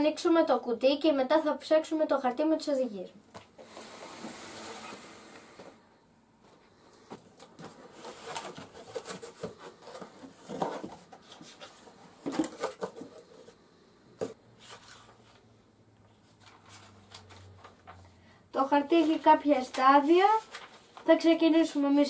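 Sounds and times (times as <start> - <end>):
cardboard flaps scraping and rustling: 7.1 - 13.6
paper sheet crackling: 16.4 - 18.0, 18.8 - 21.8.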